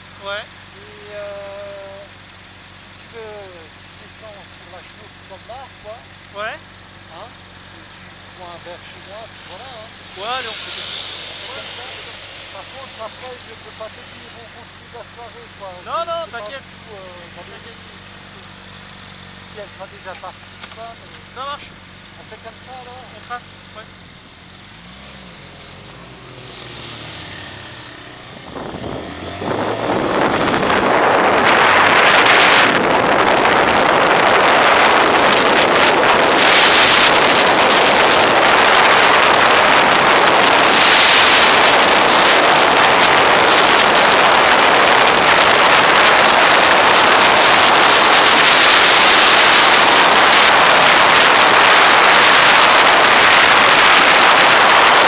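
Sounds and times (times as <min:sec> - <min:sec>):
motorcycle engine revving: 0:00.0 - 0:55.0
wind rush on microphone: 0:27.6 - 0:55.0.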